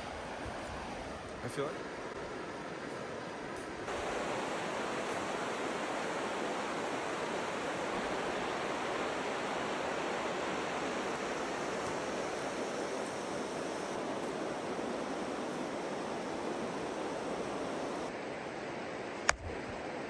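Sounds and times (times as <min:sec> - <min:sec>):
river flowing over gravel: 0:00.0 - 0:20.0.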